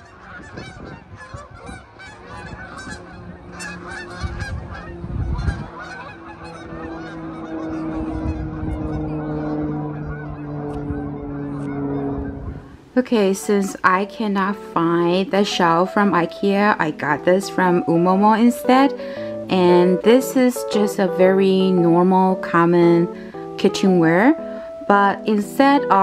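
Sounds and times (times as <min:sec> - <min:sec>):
steady low hum: 0:00.0 - 0:25.0
geese honking: 0:00.0 - 0:26.0.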